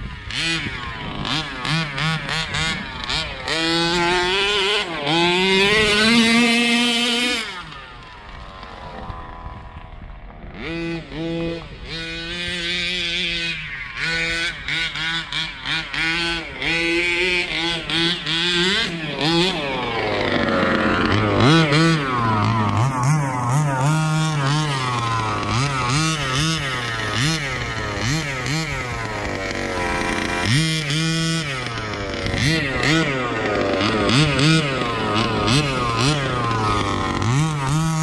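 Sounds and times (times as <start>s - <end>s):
two-stroke engine revving: 0.0s - 38.0s.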